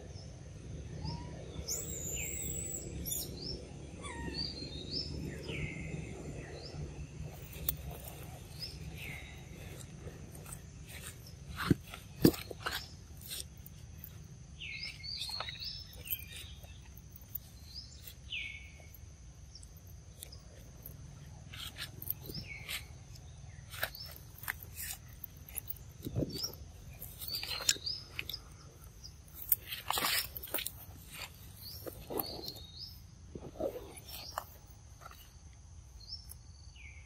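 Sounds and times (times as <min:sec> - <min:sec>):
short high chirping calls: 0:01.0 - 0:06.8
wet chewing and smacking: 0:19.6 - 0:32.6.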